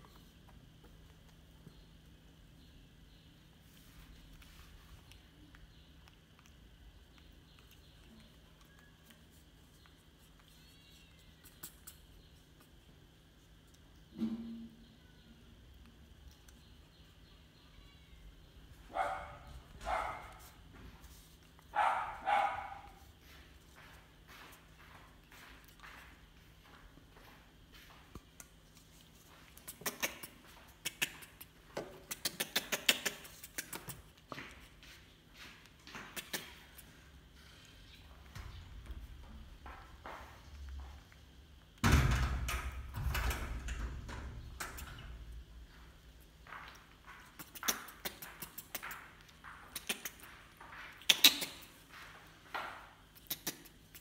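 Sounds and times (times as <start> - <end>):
faint steady hum: 0.0 - 54.0
baby monkey sucking: 4.4 - 12.8, 28.4 - 38.0, 46.6 - 51.8, 53.1 - 54.0.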